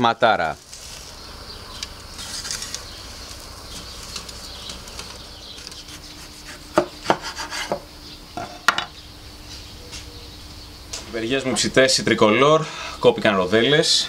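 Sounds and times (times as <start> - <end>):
knife chopping on cutting board: 6.5 - 7.8.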